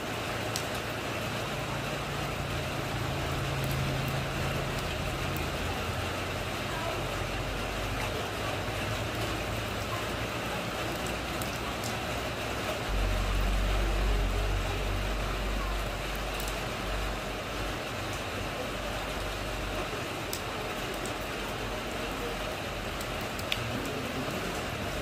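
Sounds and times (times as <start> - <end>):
rain falling on a puddle: 0.0 - 25.0
deep low rumble: 12.9 - 17.7.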